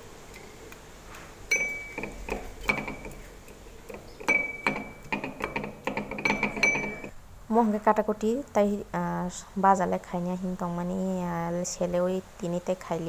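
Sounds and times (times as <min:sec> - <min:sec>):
pestle pounding in mortar: 0:01.6 - 0:07.1.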